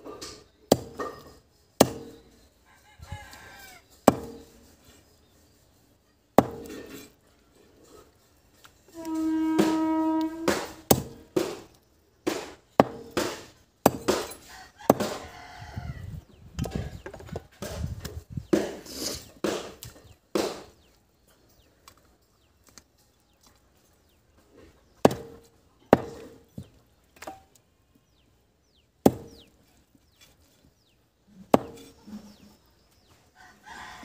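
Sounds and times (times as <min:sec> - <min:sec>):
knife chopping on wooden block: 0:01.8 - 0:02.2, 0:04.1 - 0:04.5
rooster crowing: 0:02.7 - 0:03.8, 0:14.4 - 0:16.2, 0:33.4 - 0:34.0.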